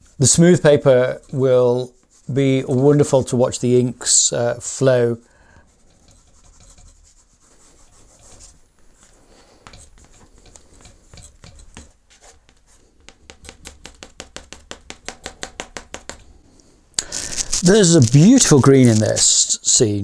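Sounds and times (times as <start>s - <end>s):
graphite stick scraping paper: 17.0s - 19.4s.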